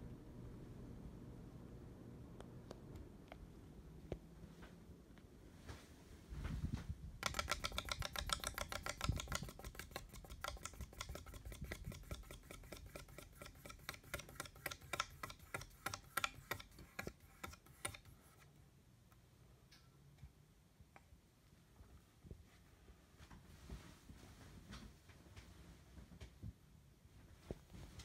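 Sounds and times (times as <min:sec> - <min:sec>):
ceiling fan clicking: 0:06.5 - 0:18.4.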